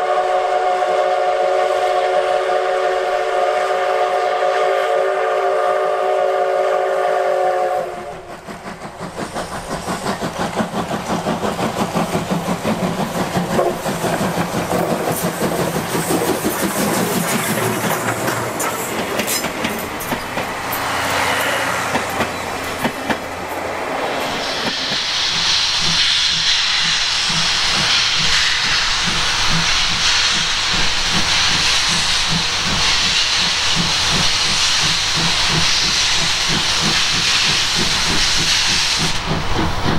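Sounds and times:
steam whistle: 0.0 - 8.3
loud steam hiss: 0.0 - 39.9
steam locomotive exhaust chuffs: 0.0 - 39.9
train wheels clattering on rails: 7.9 - 39.9.

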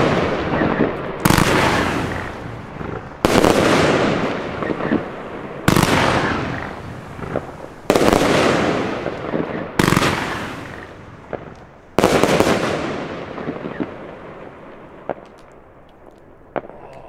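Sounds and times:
firework shells banging: 0.0 - 12.6
small firework pops: 5.7 - 12.6, 13.4 - 14.0, 15.0 - 17.0.

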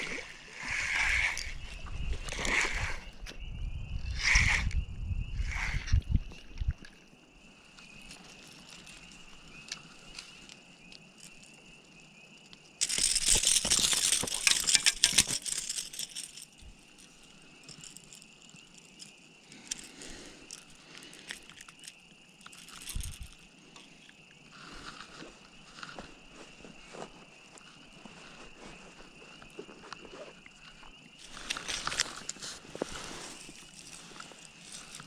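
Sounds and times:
dry grass and leaves rustling: 7.2 - 35.0.

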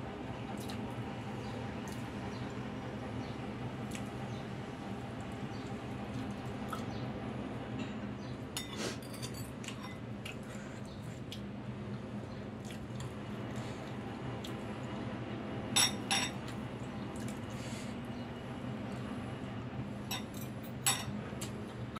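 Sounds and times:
steady low hum: 0.0 - 21.9
cutlery clinking on ceramic bowl: 15.8 - 16.4, 20.1 - 21.1.

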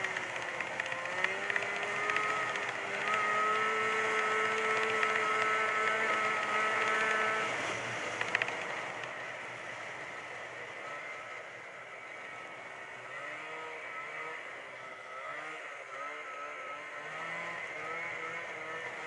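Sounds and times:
sharp clicks: 0.0 - 7.5, 8.1 - 9.2
snowmobile engine running: 0.0 - 19.0.

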